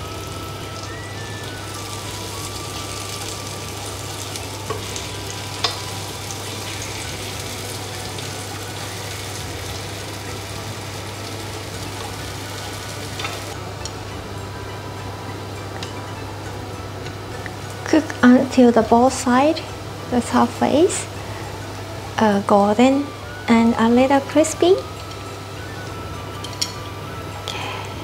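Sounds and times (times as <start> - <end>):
dumplings sizzling in a pan: 0.0 - 14.0.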